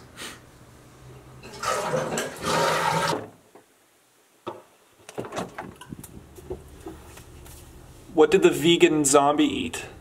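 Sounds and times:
toilet flushing: 1.4s - 3.4s.

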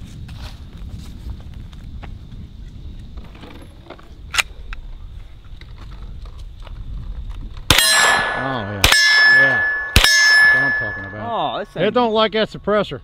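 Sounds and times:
carbine gunshots: 7.7s - 11.2s
metallic clang of steel target: 7.7s - 11.7s.

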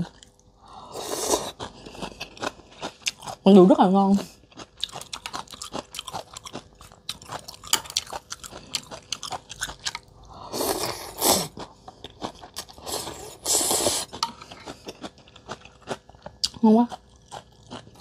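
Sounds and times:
wet chewing: 4.2s - 18.0s
noisy slurping of noodles: 10.5s - 11.6s, 12.7s - 14.2s.

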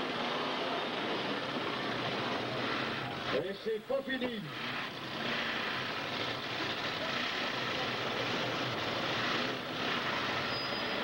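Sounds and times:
car engine running hard: 4.4s - 11.0s.

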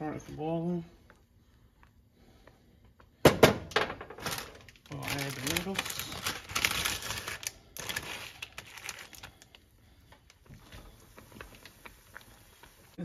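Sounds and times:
dry noodles crackling: 4.2s - 13.0s
water boiling: 7.7s - 13.0s.

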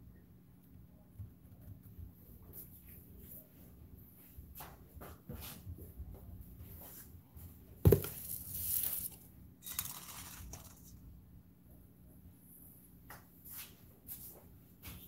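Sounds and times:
rustling and crinkling: 7.9s - 11.1s.

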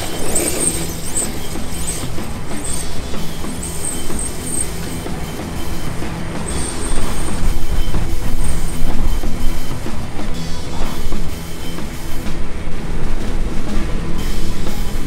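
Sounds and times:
electric rc car driving on grass: 0.0s - 12.0s
background music: 0.0s - 15.0s.

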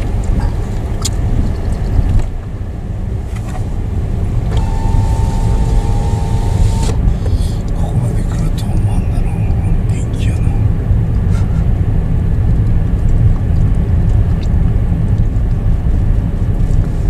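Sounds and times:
car engine and tyres rumbling: 0.0s - 17.0s
steady tone: 4.3s - 7.2s.

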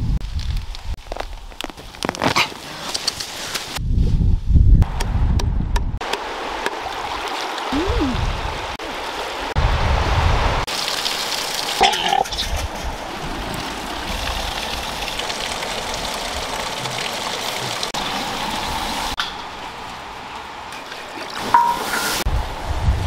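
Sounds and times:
stream water rushing over rocks: 6.0s - 12.2s, 12.8s - 22.3s.

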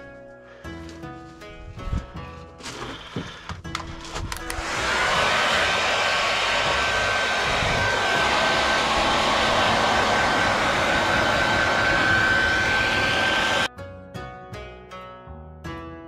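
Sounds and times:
hair dryer blowing: 4.3s - 13.7s.

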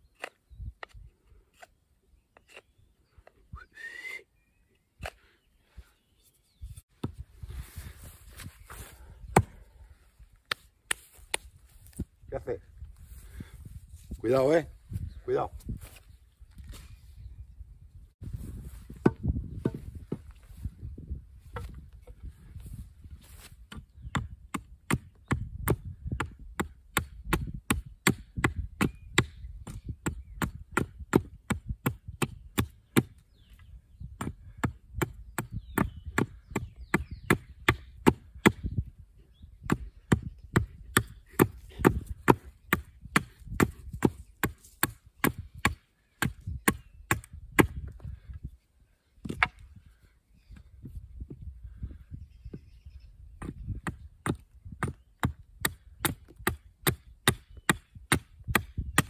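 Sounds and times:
hatchet chopping wooden pole: 7.0s - 7.2s, 9.3s - 9.6s, 18.9s - 20.3s, 21.4s - 22.2s, 23.7s - 38.8s, 39.6s - 48.0s, 49.2s - 49.6s, 53.4s - 59.0s.

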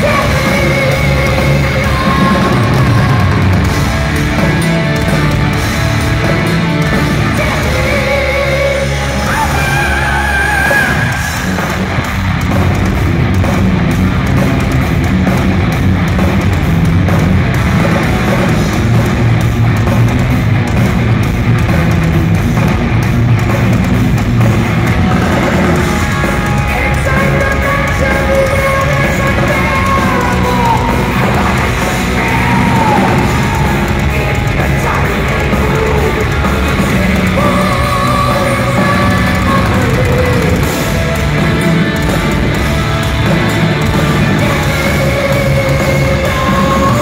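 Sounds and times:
person singing: 0.0s - 3.8s, 7.0s - 11.6s, 25.2s - 41.2s, 44.1s - 47.0s
distorted electric guitars: 0.0s - 47.0s
drums: 0.0s - 47.0s.

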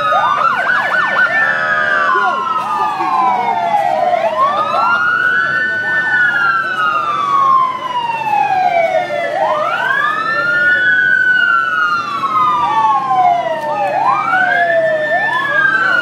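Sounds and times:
police motorcycle sirens wailing: 0.0s - 16.0s.

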